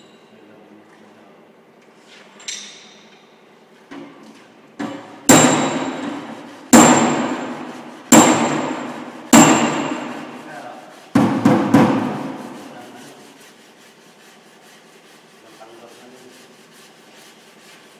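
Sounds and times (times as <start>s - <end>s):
hammer striking metal: 4.8s - 10.4s.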